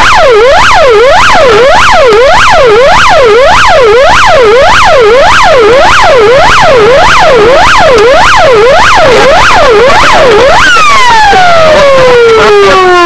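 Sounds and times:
police siren yelping: 0:00.0 - 0:13.0.

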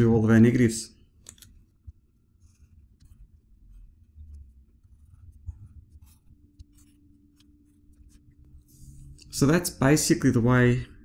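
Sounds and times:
marker scratching on paper: 0:01.8 - 0:09.0.

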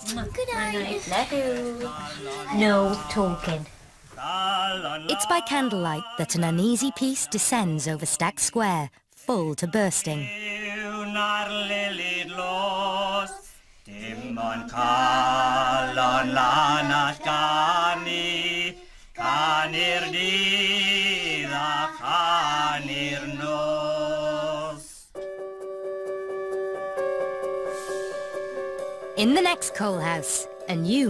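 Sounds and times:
voices singing in harmony: 0:01.5 - 0:08.2, 0:09.6 - 0:25.1.

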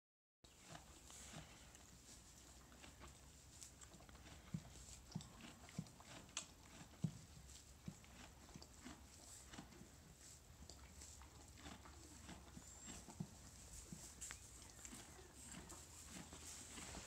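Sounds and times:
straw rustling: 0:11.0 - 0:17.0
hooves thudding: 0:11.6 - 0:17.0.

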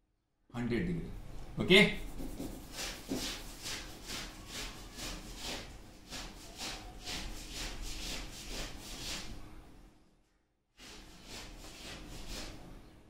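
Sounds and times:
marker writing on whiteboard: 0:02.0 - 0:09.0.

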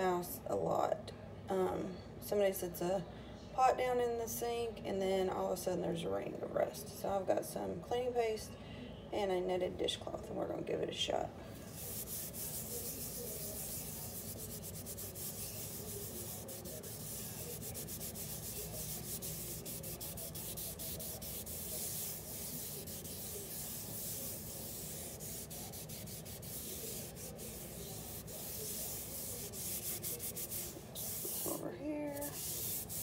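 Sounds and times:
cloth scrubbing a metal sink: 0:11.6 - 0:33.0.

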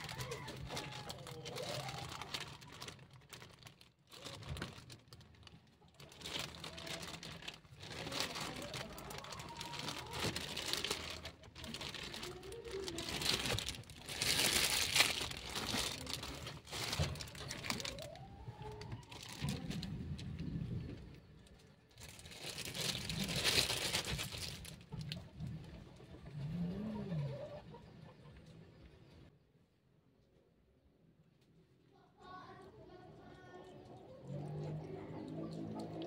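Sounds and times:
plastic bag crinkling: 0:00.0 - 0:20.9, 0:21.9 - 0:25.2.

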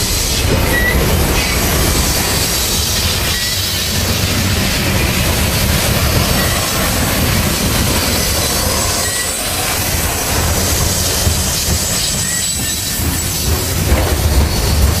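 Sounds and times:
train wheels rolling on rails: 0:00.0 - 0:15.0
faint wheel squeals: 0:00.6 - 0:01.6, 0:08.1 - 0:09.5, 0:12.0 - 0:13.4.

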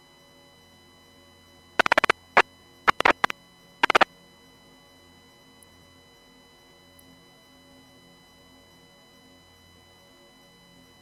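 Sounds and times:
radio static crackle: 0:01.8 - 0:02.2, 0:02.9 - 0:04.1.

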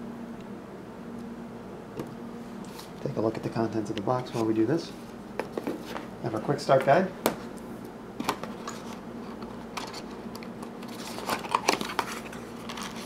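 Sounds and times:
cardboard and paper rustling: 0:10.8 - 0:13.0.

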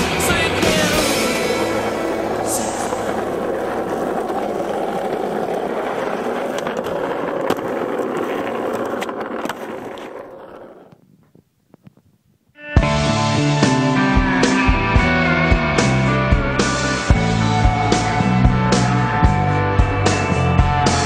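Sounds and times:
skateboard clacks: 0:00.0 - 0:12.0
skateboard wheels rolling on asphalt: 0:00.0 - 0:21.0.

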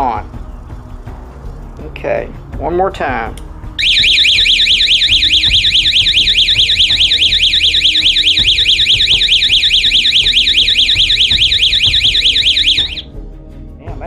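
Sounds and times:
electronic alarm siren warbling: 0:03.8 - 0:13.0.

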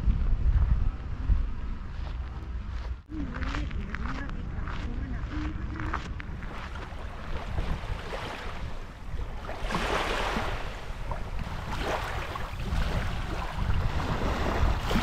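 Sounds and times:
wind rumbling on microphone: 0:00.0 - 0:15.0
small waves lapping on sand: 0:03.4 - 0:15.0.

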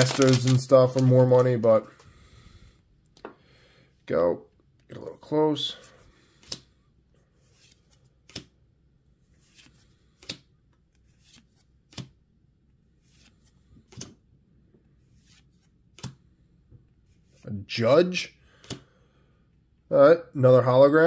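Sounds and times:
cards rustling: 0:00.0 - 0:02.0, 0:07.4 - 0:08.6, 0:09.2 - 0:12.2.

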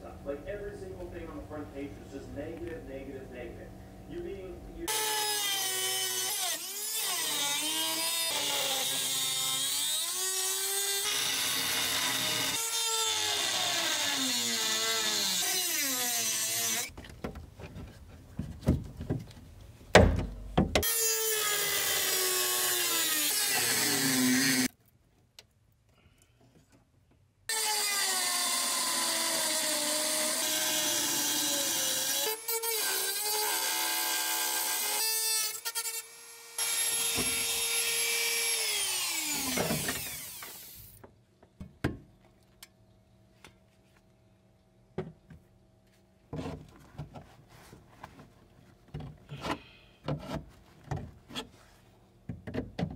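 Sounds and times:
cutoff wheel cutting metal: 0:04.9 - 0:16.9, 0:20.8 - 0:24.7, 0:27.5 - 0:40.9.

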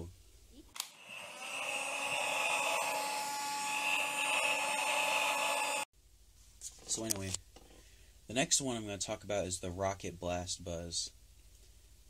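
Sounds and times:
toy fan whirring: 0:00.8 - 0:05.8.

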